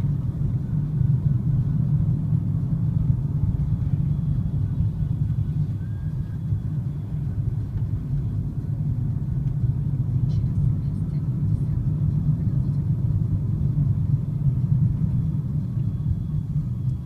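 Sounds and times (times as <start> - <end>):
car cabin low rumble: 0.0 - 17.0.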